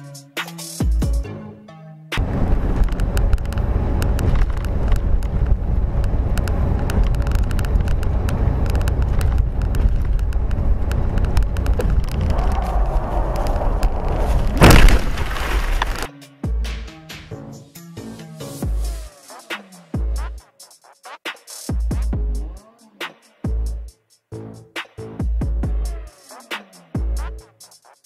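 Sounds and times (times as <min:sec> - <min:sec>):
car engine and road rumble: 0:02.2 - 0:16.1
small clicks and rattles: 0:02.8 - 0:12.3
loud bang: 0:12.2 - 0:16.1.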